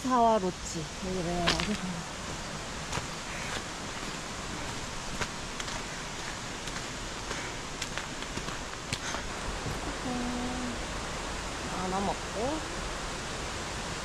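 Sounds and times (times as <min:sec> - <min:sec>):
steady rushing noise: 0:00.0 - 0:14.0
footsteps crunching on gravel: 0:01.4 - 0:09.8.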